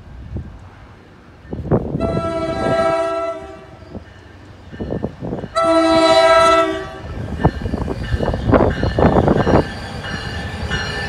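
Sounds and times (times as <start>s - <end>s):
locomotive horn blasts: 2.0s - 3.8s, 5.6s - 7.1s.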